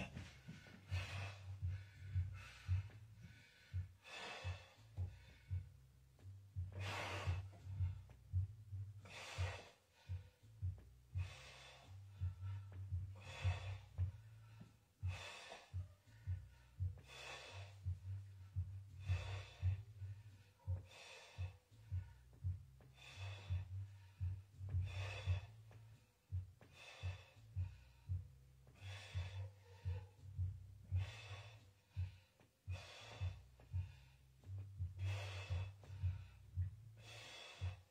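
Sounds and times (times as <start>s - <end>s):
man breathing forcefully: 0.0s - 37.9s.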